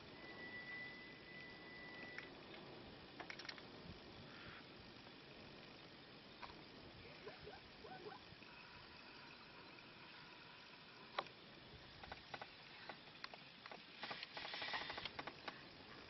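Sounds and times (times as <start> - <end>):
rattling clicks: 12.0 - 15.7.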